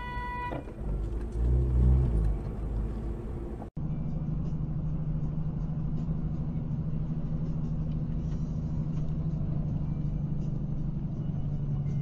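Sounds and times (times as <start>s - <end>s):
vehicle road and engine drone: 0.0s - 12.0s.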